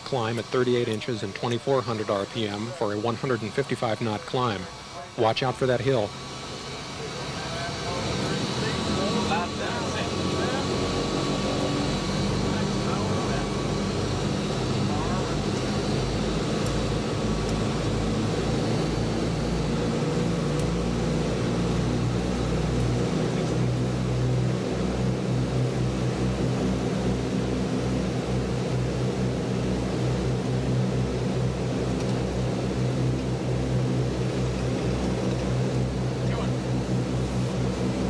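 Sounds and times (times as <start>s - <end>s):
propeller engines droning: 0.0s - 38.0s
throbbing engine beat: 7.7s - 38.0s.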